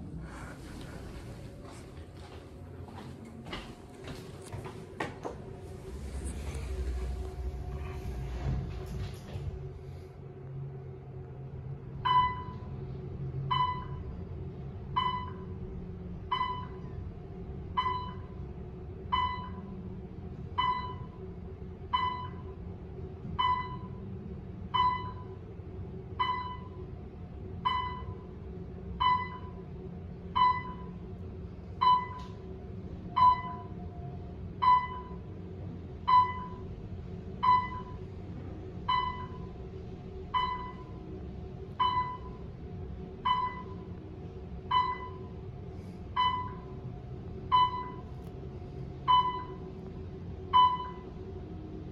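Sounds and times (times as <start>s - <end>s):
elevator car hum: 0.0s - 51.9s
elevator chime ding: 12.0s - 12.8s, 13.5s - 14.1s, 14.9s - 15.6s, 16.3s - 16.9s, 17.7s - 18.4s, 20.6s - 21.2s, 23.4s - 24.0s, 24.7s - 25.4s, 26.2s - 26.8s, 27.6s - 28.3s, 29.0s - 29.6s, 30.3s - 31.0s, 31.8s - 32.3s, 33.1s - 33.9s, 34.6s - 35.3s, 36.1s - 36.7s, 37.4s - 38.1s, 38.8s - 39.6s, 40.3s - 41.0s, 41.8s - 42.4s, 43.2s - 43.9s, 44.7s - 45.4s, 46.1s - 46.8s, 47.5s - 48.1s, 49.1s - 49.7s, 50.5s - 51.2s.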